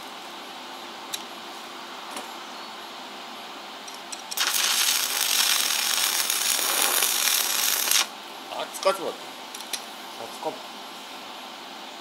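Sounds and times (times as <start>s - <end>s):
arc welding crackling hiss: 4.3s - 8.1s.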